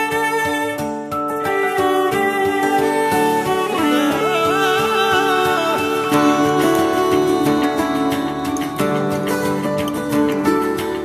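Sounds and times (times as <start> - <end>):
instrumental music with steady beat: 0.0 - 11.0.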